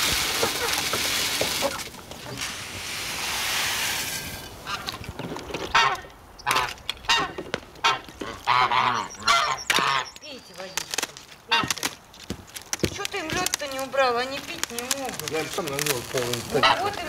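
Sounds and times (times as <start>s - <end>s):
water poured from a bucket: 0.0s - 5.9s, 15.0s - 16.8s
geese honking: 5.6s - 10.2s, 11.5s - 11.8s, 16.5s - 17.0s.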